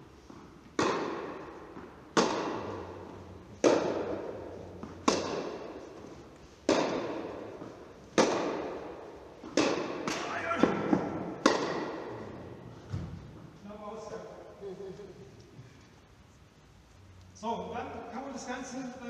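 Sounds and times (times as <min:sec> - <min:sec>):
tennis balls hit by rackets: 0:00.2 - 0:13.5.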